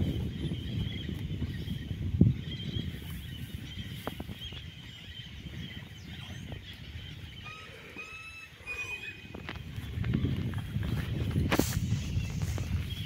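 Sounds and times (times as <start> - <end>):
bird whistling calls: 2.6 - 10.3.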